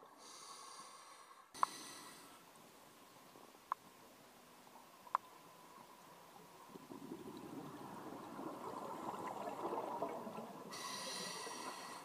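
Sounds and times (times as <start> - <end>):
scuba bubbles gurgling underwater: 6.7 - 12.0.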